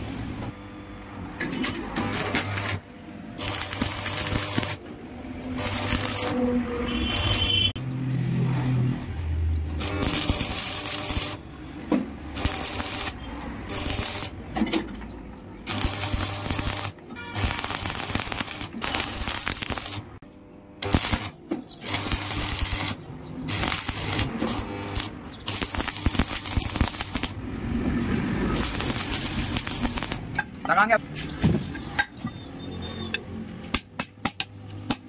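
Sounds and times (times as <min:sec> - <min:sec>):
welding arc crackling and sizzling: 0:01.6 - 0:07.8, 0:09.1 - 0:14.6, 0:15.6 - 0:20.2, 0:20.8 - 0:30.4.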